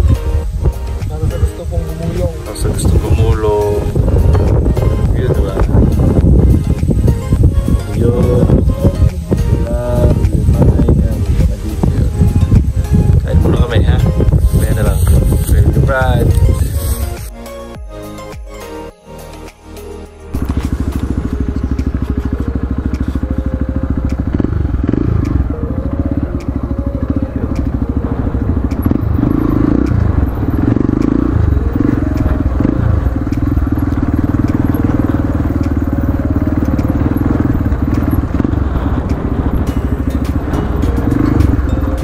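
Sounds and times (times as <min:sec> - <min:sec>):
dirt bike engine revving: 0:20.3 - 0:42.0.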